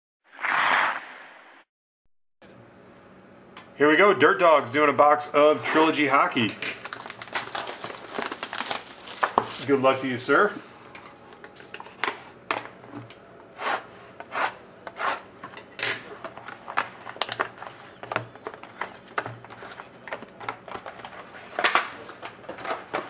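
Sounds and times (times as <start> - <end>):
card packs set on table: 5.8 - 9.8.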